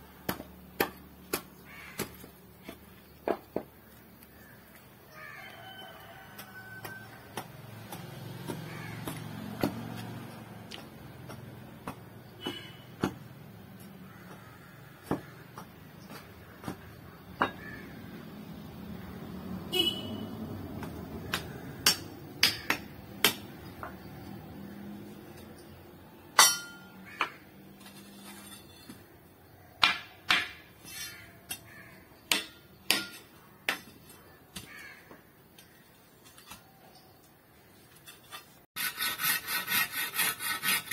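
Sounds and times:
sharp knocks and clinks: 0:26.3 - 0:27.0.

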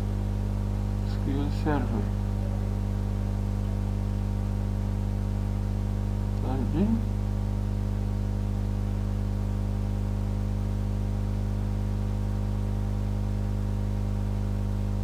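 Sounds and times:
constant hiss: 0:00.0 - 0:10.1
electrical mains hum: 0:00.0 - 0:15.0.

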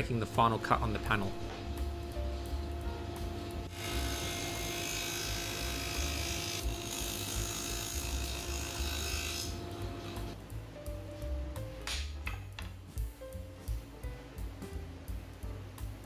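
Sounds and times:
table saw motor running: 0:01.6 - 0:10.4
saw cutting through plywood: 0:03.7 - 0:10.3.

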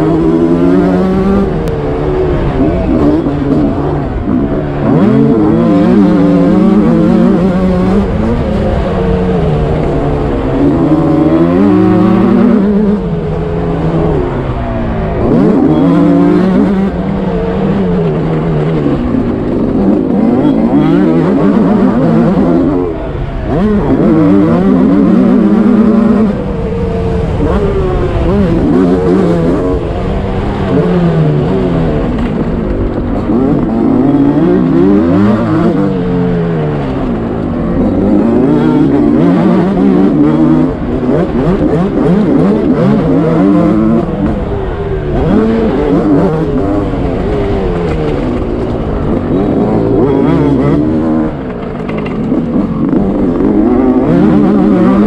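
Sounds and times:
two-stroke motocross bike engine: 0:00.0 - 0:55.0.

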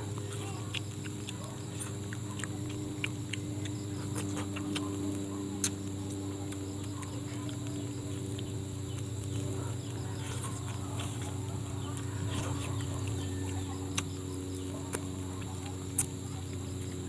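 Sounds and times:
steady low hum: 0:00.0 - 0:17.0
wet mouth clicks and smacks: 0:05.6 - 0:07.7, 0:15.9 - 0:16.2.

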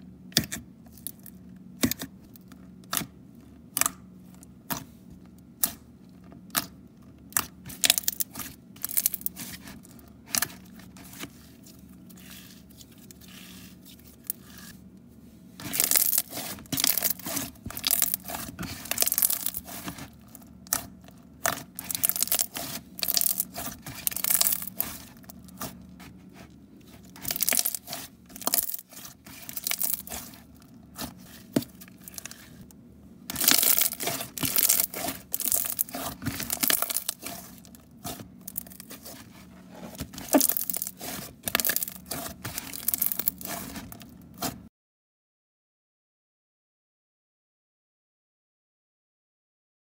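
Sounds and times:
slime popping and crackling: 0:15.7 - 0:19.9, 0:21.4 - 0:25.2, 0:27.1 - 0:30.4, 0:33.3 - 0:39.2, 0:40.2 - 0:43.9.

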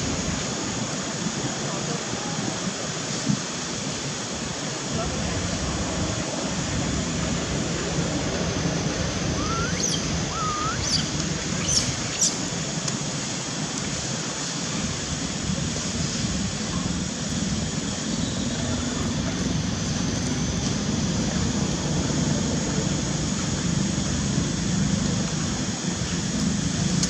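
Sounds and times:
outdoor background noise: 0:00.0 - 0:27.0
rising chirps and squeaks: 0:09.4 - 0:12.4.

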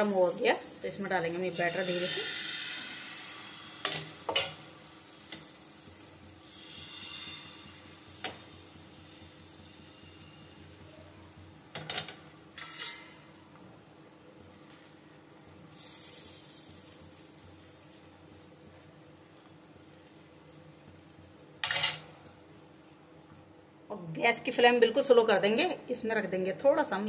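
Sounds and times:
batter sizzling on a pan: 0:00.0 - 0:25.1
ladle scraping a pan: 0:12.6 - 0:13.2.

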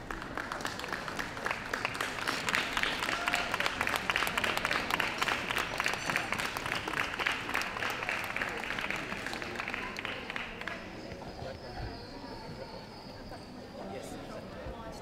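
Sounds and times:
audience applauding: 0:00.0 - 0:11.2.

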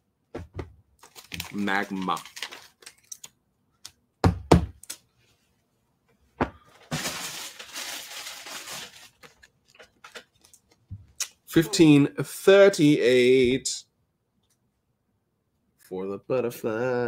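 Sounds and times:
plastic packaging crinkling: 0:01.0 - 0:03.3, 0:06.7 - 0:10.8.

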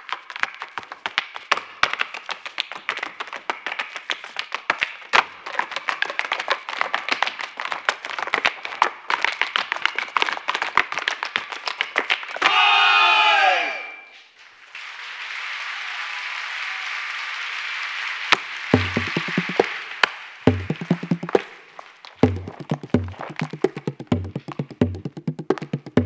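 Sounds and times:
hard shoes dancing on stage: 0:18.8 - 0:19.8, 0:20.5 - 0:21.5, 0:22.2 - 0:26.0.

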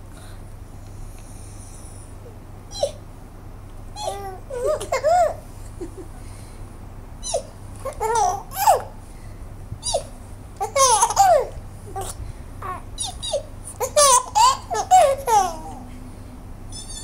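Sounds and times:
baby giggling and squealing: 0:04.0 - 0:06.1, 0:07.2 - 0:08.9, 0:09.8 - 0:15.9.

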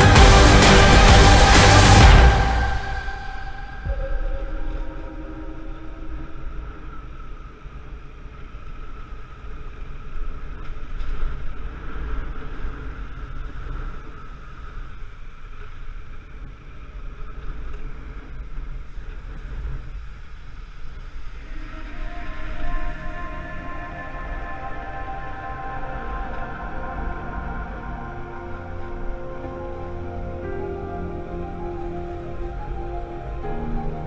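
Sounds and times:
motorcycle engine: 0:00.0 - 0:04.0
wind rumble on microphone: 0:00.0 - 0:34.0.

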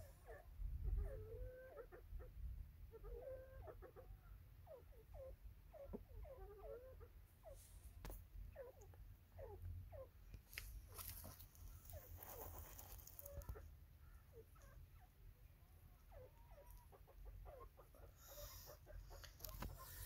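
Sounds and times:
bird clucking calls: 0:00.0 - 0:07.7, 0:08.4 - 0:15.1, 0:15.9 - 0:20.0.

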